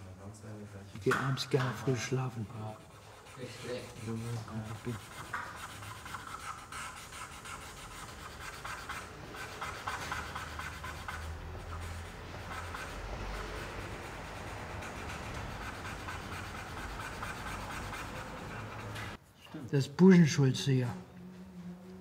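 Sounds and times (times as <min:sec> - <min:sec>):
paintbrush scratching on paper: 0:01.7 - 0:19.2.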